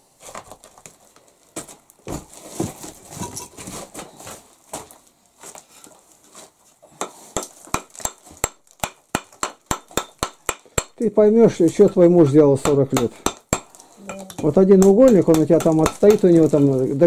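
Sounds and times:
hammer tapping on brick: 7.0 - 16.6
bricks clattering: 7.0 - 17.0.

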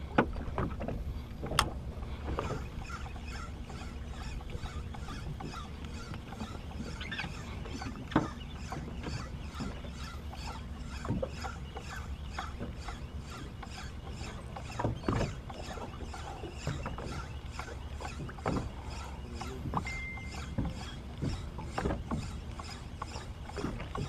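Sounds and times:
boat engine low rumble: 0.0 - 24.0.

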